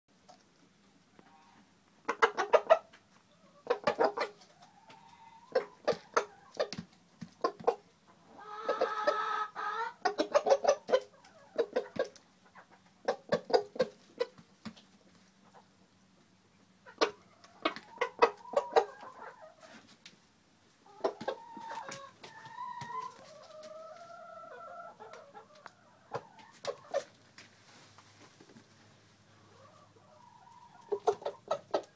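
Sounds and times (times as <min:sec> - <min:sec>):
rooster clucking: 0:01.2 - 0:06.8, 0:07.4 - 0:14.4, 0:16.8 - 0:19.8, 0:20.9 - 0:27.2, 0:29.4 - 0:31.9.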